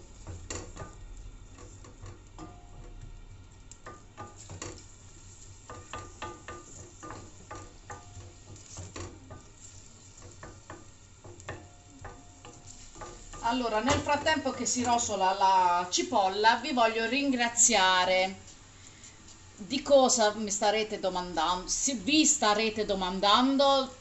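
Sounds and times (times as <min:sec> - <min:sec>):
wooden spoon scraping and knocking pan: 0:00.0 - 0:15.8
onion sizzling in oil: 0:00.0 - 0:24.0.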